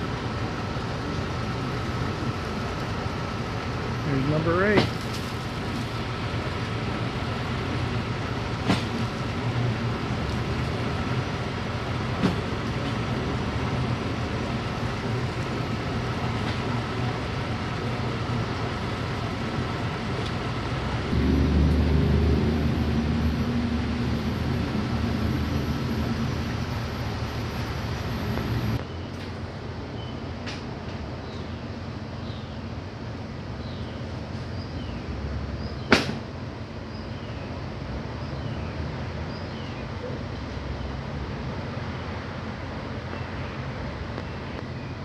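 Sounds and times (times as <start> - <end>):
truck engine idling: 0.0 - 29.9
deep engine rumble: 0.0 - 45.0.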